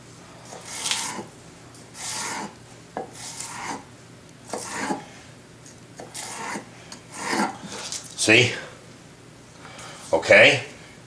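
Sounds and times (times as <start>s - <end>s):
knife slicing on cutting board: 0.5s - 1.3s, 2.0s - 3.8s, 4.5s - 5.0s, 6.0s - 7.6s.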